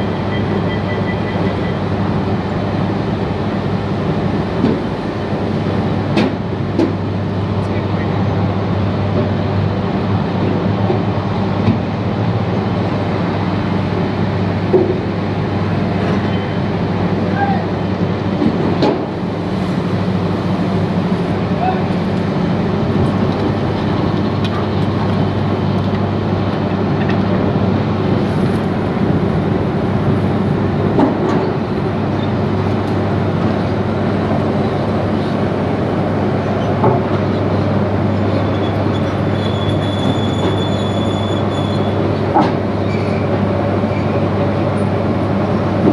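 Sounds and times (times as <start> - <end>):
factory machinery rumble: 0.0 - 45.9
high metallic squeal: 38.6 - 42.0.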